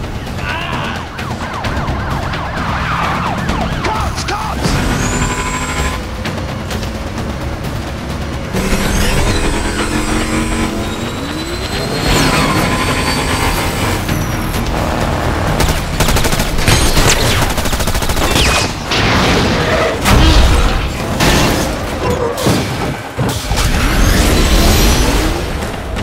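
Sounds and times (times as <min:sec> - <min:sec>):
film music: 0:00.0 - 0:26.0
vehicle engines whining: 0:00.0 - 0:26.0
rapid gunfire: 0:15.4 - 0:18.9.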